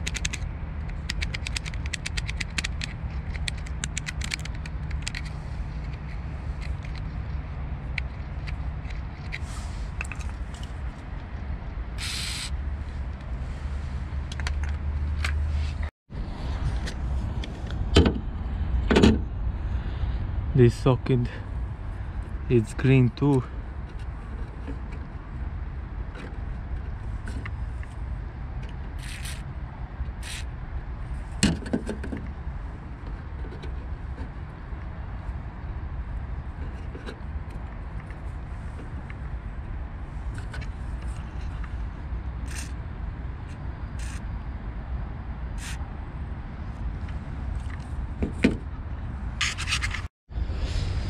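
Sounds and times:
light scrapes and clicks: 0:00.0 - 0:11.0, 0:42.5 - 0:42.8, 0:49.4 - 0:50.1
clicks and scrapes of parts: 0:00.0 - 0:11.4, 0:14.2 - 0:15.9, 0:23.2 - 0:25.2, 0:26.0 - 0:28.0, 0:28.6 - 0:30.5, 0:33.0 - 0:34.5, 0:36.5 - 0:39.3, 0:40.3 - 0:41.8, 0:42.4 - 0:42.8, 0:43.5 - 0:44.2, 0:45.6 - 0:45.8, 0:47.0 - 0:48.8, 0:49.4 - 0:50.1
aerosol can hiss: 0:12.0 - 0:12.5
steady low rumble: 0:50.0 - 0:51.0.

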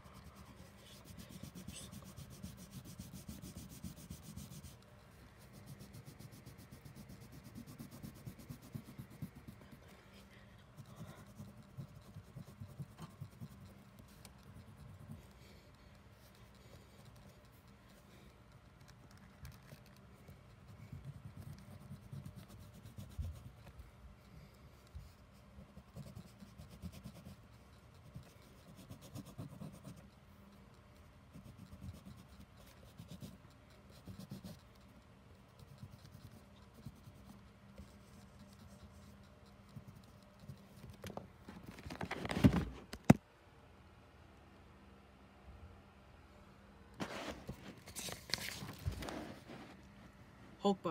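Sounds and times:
crayon scratching on paper: 0:00.0 - 0:23.8, 0:24.8 - 0:30.7, 0:31.3 - 0:42.1.

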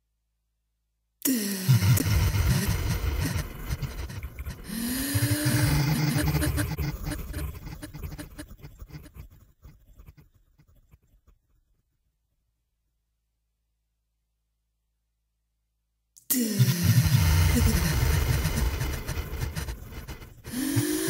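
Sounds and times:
experimental electronic music: 0:01.7 - 0:09.0.

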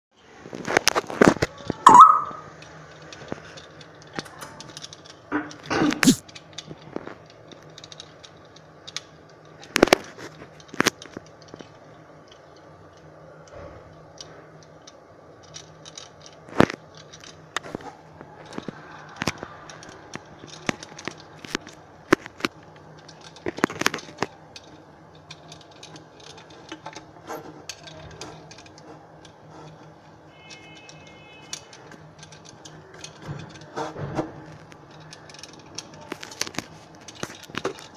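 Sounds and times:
parrot chewing plastic toy: 0:15.5 - 0:37.9.

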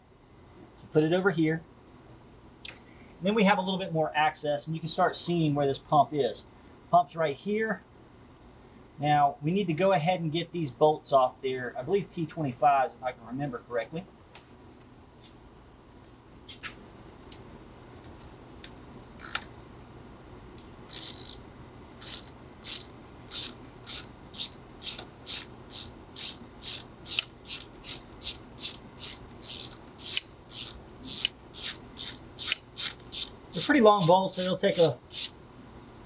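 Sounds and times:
ratchet wrench clicking: 0:19.2 - 0:19.5, 0:20.9 - 0:21.4, 0:22.0 - 0:35.3.

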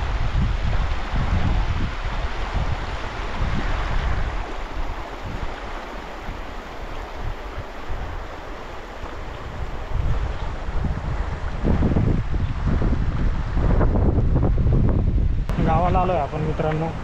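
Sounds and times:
river rushing over rocks: 0:00.0 - 0:11.8
wind buffeting microphone: 0:00.0 - 0:17.0.

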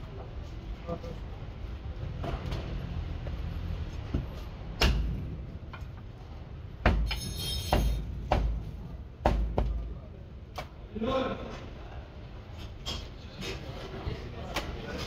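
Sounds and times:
metallic ring: 0:07.1 - 0:08.1.

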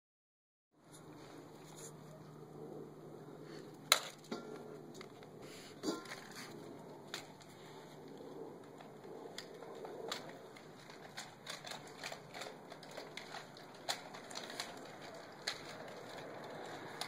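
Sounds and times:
dog claws clicking on concrete: 0:06.0 - 0:17.0.

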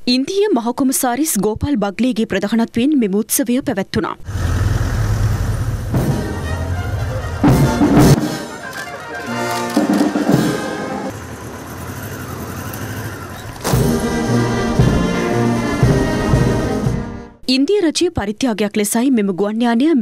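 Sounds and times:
brass band music: 0:05.9 - 0:11.7, 0:13.5 - 0:17.4.

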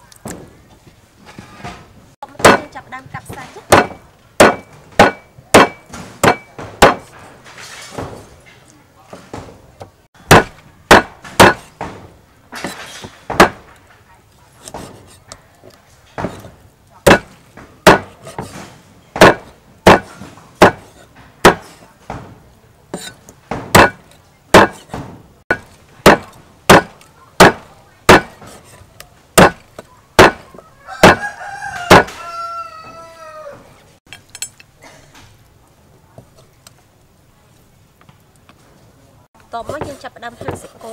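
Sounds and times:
cleaver chopping on wooden block: 0:03.7 - 0:07.1, 0:10.3 - 0:12.0, 0:12.6 - 0:13.6, 0:16.2 - 0:18.6, 0:19.2 - 0:22.2, 0:23.0 - 0:28.7, 0:29.4 - 0:32.2
rooster crowing: 0:30.4 - 0:33.8.

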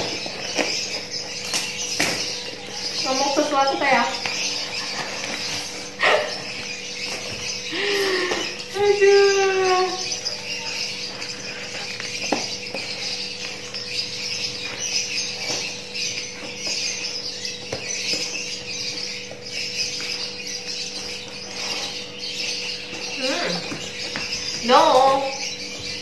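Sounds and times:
high-pitched chirping: 0:00.0 - 0:26.0.

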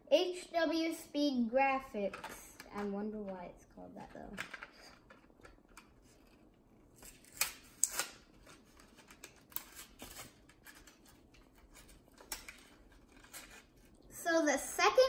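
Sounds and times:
cardboard and plastic packaging tearing: 0:07.0 - 0:14.0.

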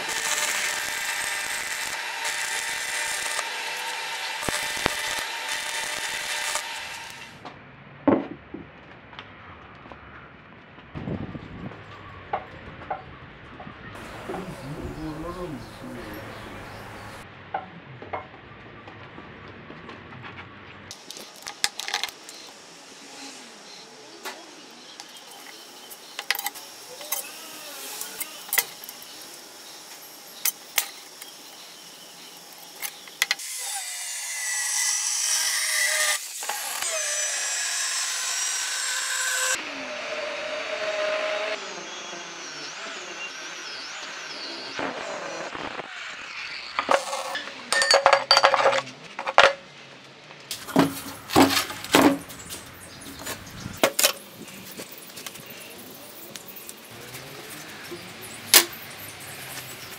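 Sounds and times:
angle grinder cutting steel: 0:00.0 - 0:07.4, 0:20.9 - 0:48.8.

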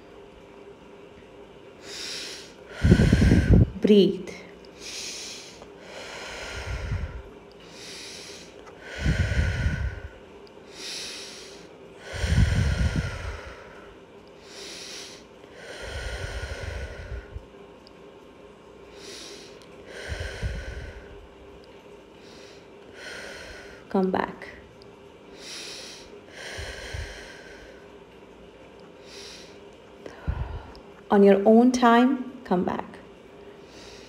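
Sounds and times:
low breath puffs: 0:01.8 - 0:03.8, 0:04.8 - 0:17.4
woman breathing deeply: 0:01.8 - 0:03.8, 0:04.7 - 0:17.5, 0:18.9 - 0:21.4, 0:22.2 - 0:24.6, 0:25.3 - 0:28.0, 0:28.8 - 0:31.0, 0:33.4 - 0:34.0.

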